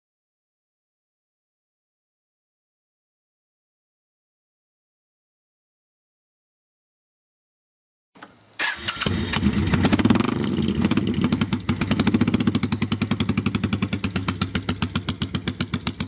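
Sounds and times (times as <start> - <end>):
motorcycle engine starting and idling: 8.2 - 16.0.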